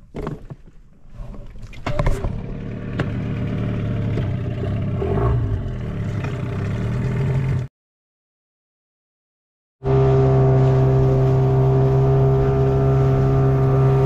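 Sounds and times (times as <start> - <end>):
outboard motor running: 1.9 - 7.7, 9.8 - 14.0.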